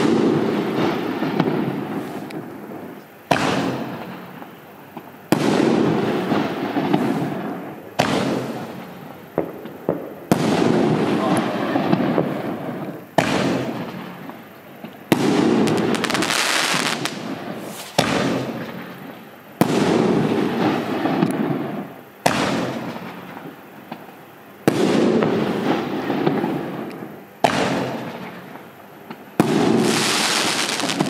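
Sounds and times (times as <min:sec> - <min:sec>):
firework launch bang: 0:00.0 - 0:02.5, 0:03.3 - 0:04.5, 0:05.3 - 0:14.4, 0:15.1 - 0:24.0, 0:27.4 - 0:28.5, 0:29.4 - 0:31.0
firework shell crackling burst: 0:00.0 - 0:31.0.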